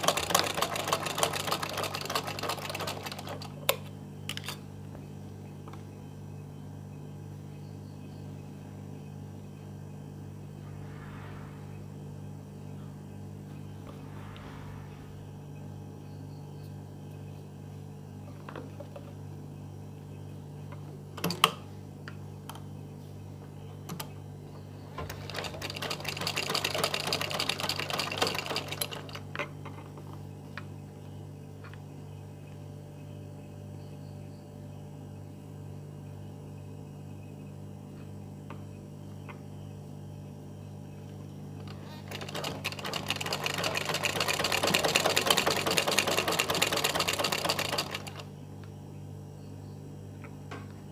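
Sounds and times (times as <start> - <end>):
sewing machine stitching: 0.0 - 3.6, 25.0 - 29.2, 41.7 - 48.3
steady low hum: 0.0 - 50.9.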